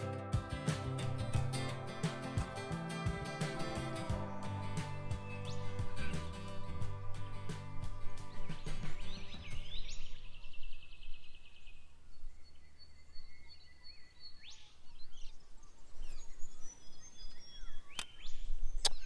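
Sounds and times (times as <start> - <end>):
birds whistling calls: 0.8 - 19.0
sharp click: 17.9 - 18.2, 18.8 - 19.0.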